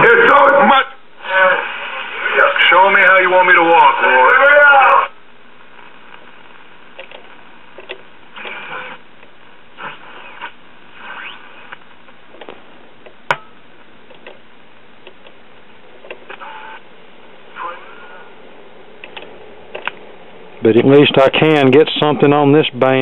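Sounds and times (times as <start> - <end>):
radio static: 0.0 - 12.2, 16.2 - 18.5
radio whistles: 8.4 - 9.0, 9.8 - 11.8, 16.3 - 16.8.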